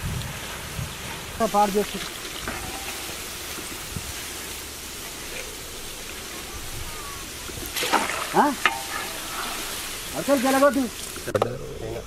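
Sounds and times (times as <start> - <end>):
fries sizzling in hot oil: 0.0 - 11.8.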